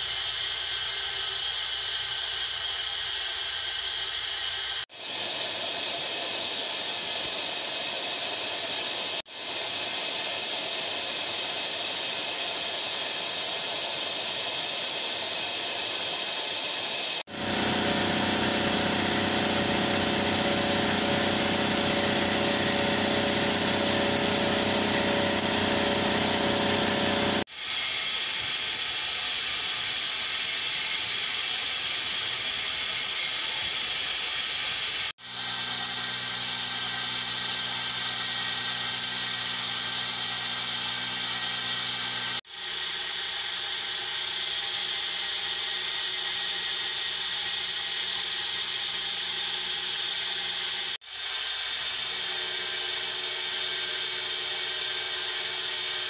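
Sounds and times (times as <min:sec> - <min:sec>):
steady whine: 0:00.0 - 0:29.2
milling machine cutting metal: 0:05.0 - 0:28.5.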